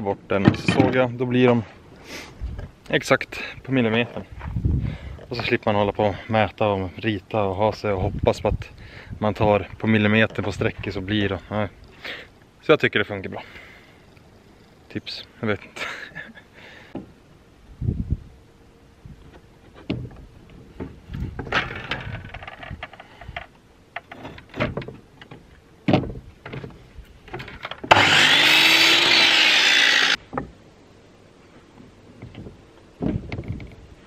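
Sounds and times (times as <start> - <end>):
miter saw cutting wood: 27.9 - 30.2.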